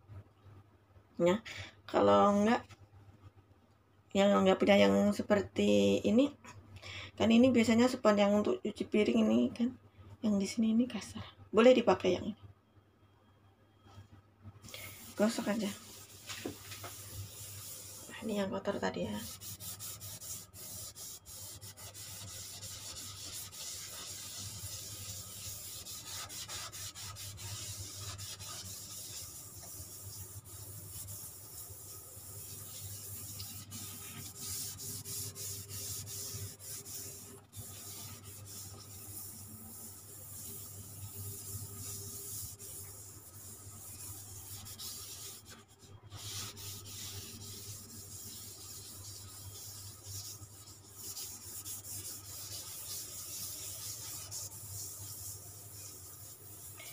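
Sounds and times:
scouring pad scrubbing countertop: 0:14.8 - 0:56.9.

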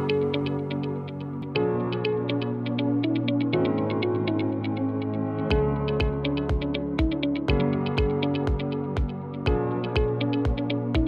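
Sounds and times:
electronic synthesizer music: 0:00.0 - 0:11.0
quick ticking beat: 0:05.5 - 0:11.0.

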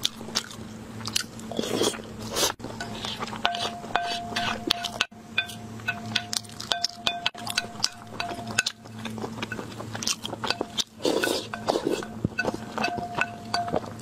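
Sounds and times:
chewing and mouth clicks: 0:00.0 - 0:03.7, 0:07.4 - 0:14.0
spoon scraping porcelain plate: 0:02.8 - 0:05.5.

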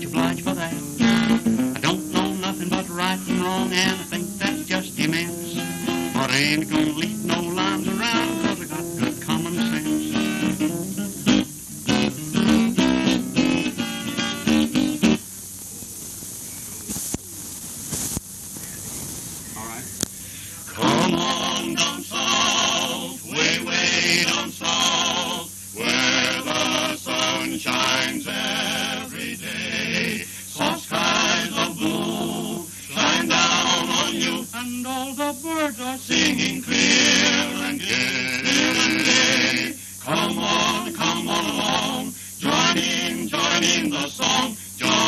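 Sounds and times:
male vocal group singing in harmony: 0:00.0 - 0:10.6, 0:20.7 - 0:45.0
steady low hum: 0:00.0 - 0:45.0.

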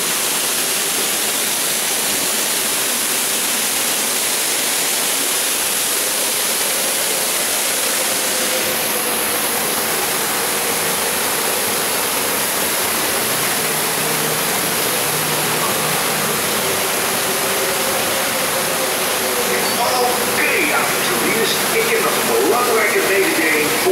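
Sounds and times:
waterfall splashing: 0:00.0 - 0:23.9.

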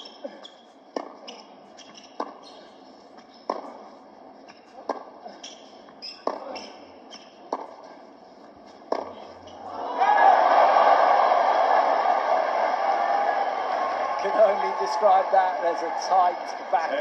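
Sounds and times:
shoe squeaks on court: 0:00.0 - 0:03.7, 0:05.3 - 0:07.8
tennis racket striking ball: 0:03.4 - 0:03.8, 0:06.1 - 0:06.8, 0:08.9 - 0:09.2.

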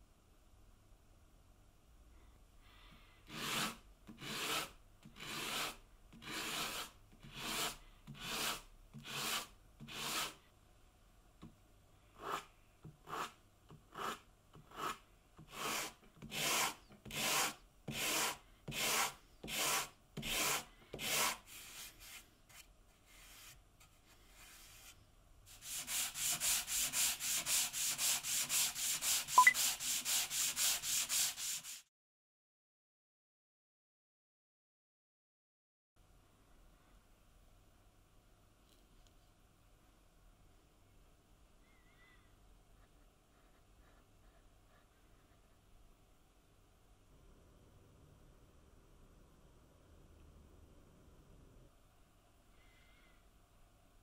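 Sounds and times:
sandpaper rubbing on wood: 0:03.3 - 0:10.4, 0:25.5 - 0:31.9.

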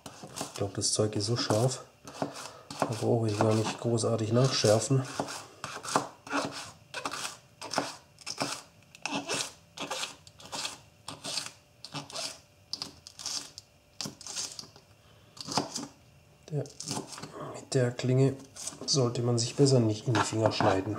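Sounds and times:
knife slicing onions on a board: 0:00.0 - 0:00.7, 0:01.3 - 0:12.4, 0:15.4 - 0:15.9, 0:16.7 - 0:17.3, 0:20.1 - 0:20.8.

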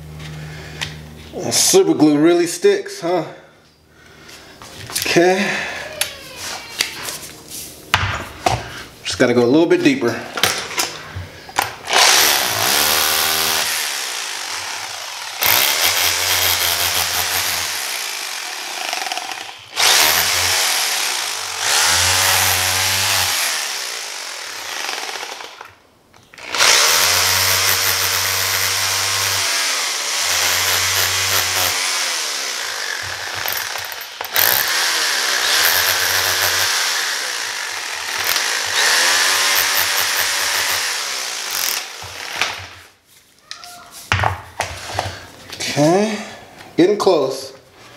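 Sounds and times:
electric drill boring: 0:11.6 - 0:25.8, 0:26.4 - 0:42.8.

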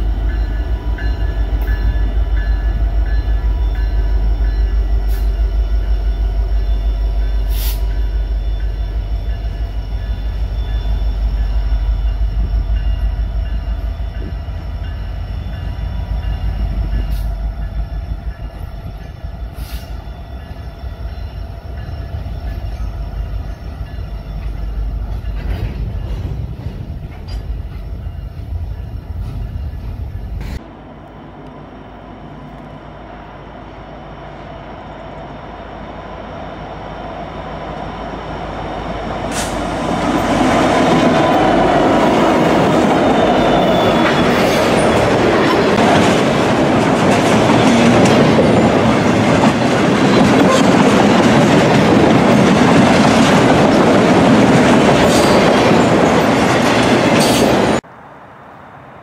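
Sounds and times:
train engine and wheel rumble: 0:00.0 - 0:59.0
metallic wheel squeals and clanks: 0:42.3 - 0:45.8.

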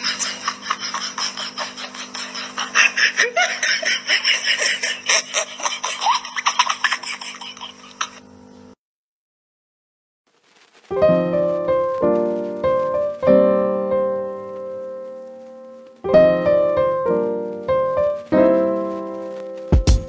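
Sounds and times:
piano chords: 0:10.9 - 0:20.0.

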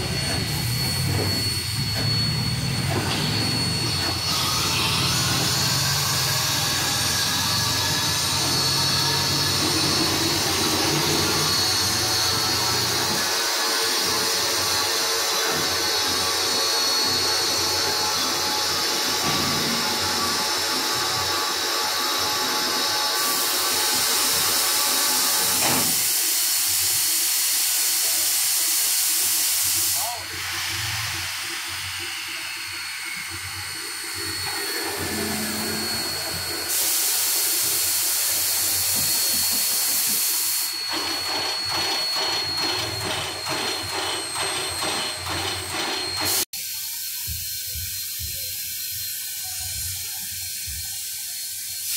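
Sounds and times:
steam hissing: 0:00.0 - 0:51.9
steam venting hiss: 0:23.1 - 0:42.3, 0:46.2 - 0:51.9.

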